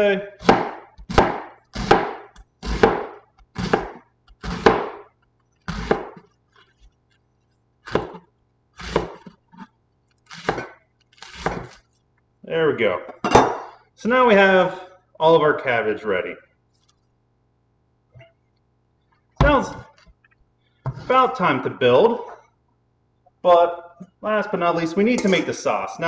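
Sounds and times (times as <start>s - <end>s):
knife crunching through cabbage: 0.4s - 12.0s.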